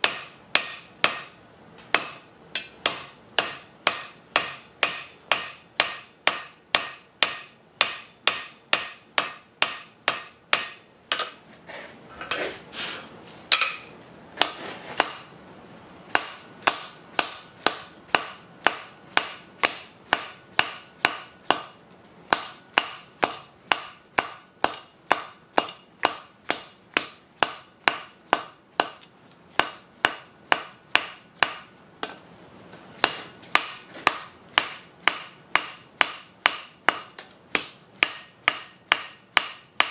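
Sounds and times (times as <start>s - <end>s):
hammer clanging on anvil: 0.0s - 11.4s, 13.5s - 15.3s.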